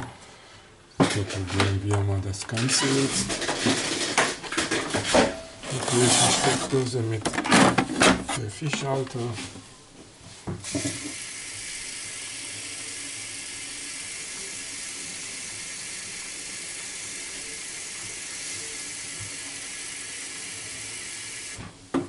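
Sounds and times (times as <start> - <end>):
water running from a tap: 10.6 - 21.6.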